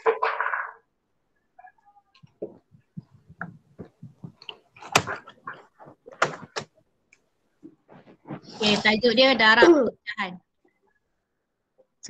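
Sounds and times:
irregular knocks and clicks: 2.2 - 6.8.

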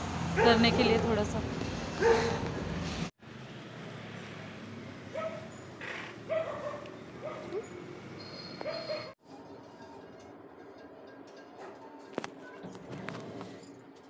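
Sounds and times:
dog yipping: 5.1 - 5.5, 6.3 - 7.7, 8.6 - 9.2.

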